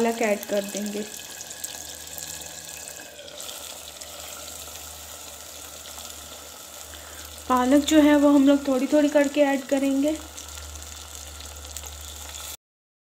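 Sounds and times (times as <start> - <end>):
food sizzling in a pot: 0.0 - 12.6.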